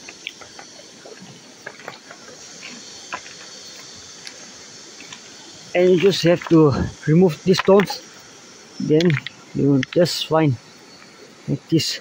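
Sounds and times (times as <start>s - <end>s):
wet pebbles knocking together: 0.0s - 4.4s, 7.5s - 8.0s, 8.9s - 10.1s.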